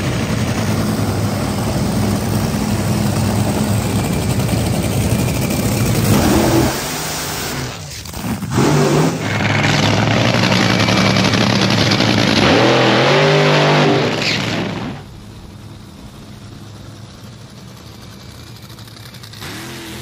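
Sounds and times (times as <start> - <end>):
race car engine revving: 0.0 - 15.2, 18.8 - 20.0.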